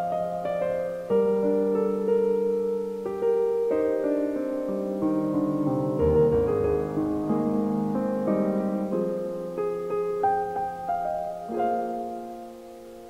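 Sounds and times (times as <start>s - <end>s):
piano melody: 0.0s - 13.0s.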